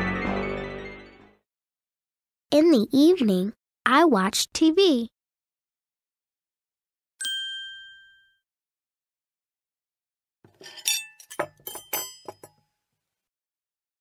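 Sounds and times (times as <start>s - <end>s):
bright chime ding: 7.2s - 8.4s
sharp clinks and clatters: 10.5s - 12.6s.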